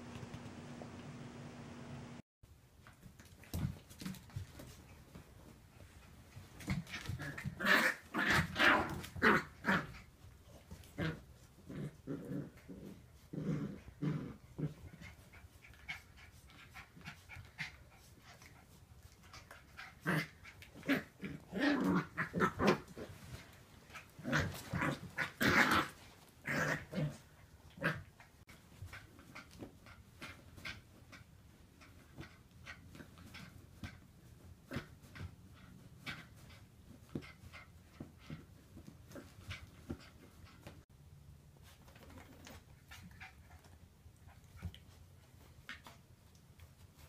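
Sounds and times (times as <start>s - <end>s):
puppies growling: 10.7s - 16.1s, 19.4s - 29.6s.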